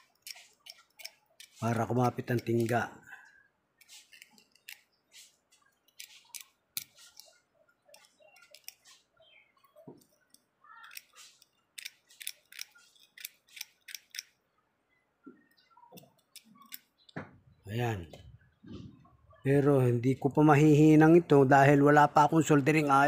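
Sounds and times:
metal tool scraping metal: 0:00.0 - 0:02.7, 0:03.8 - 0:05.3, 0:05.9 - 0:09.0, 0:10.8 - 0:14.4.

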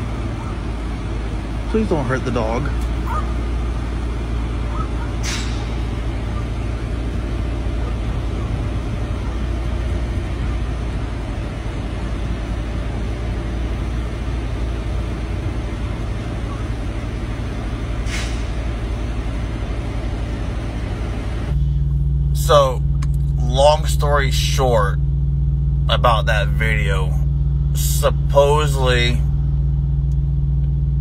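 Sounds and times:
trucks idling diesel rumble: 0:00.0 - 0:31.0
air brake hiss: 0:05.2 - 0:05.7, 0:18.0 - 0:18.6.

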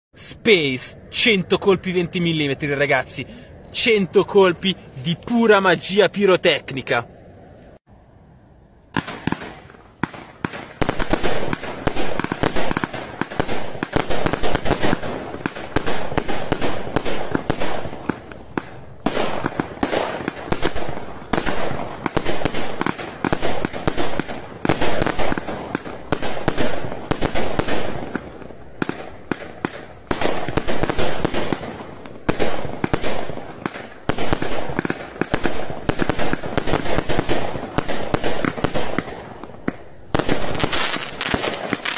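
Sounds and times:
firework cake firing: 0:08.9 - 0:41.9.

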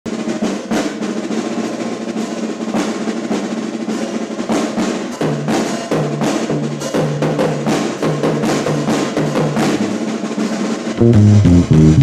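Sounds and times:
drum kit snare fills: 0:00.0 - 0:12.0
electric bass line: 0:11.0 - 0:12.0.

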